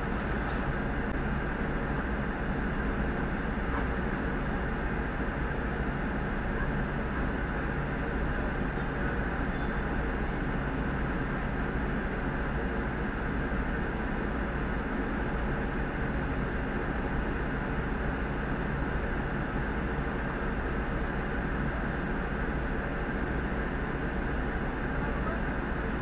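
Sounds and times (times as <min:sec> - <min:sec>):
diesel engine humming: 0:00.0 - 0:26.0.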